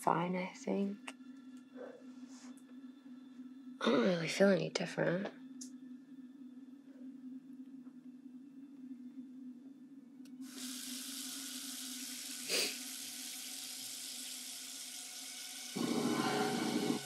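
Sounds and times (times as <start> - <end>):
tap water running into sink: 10.4 - 17.0.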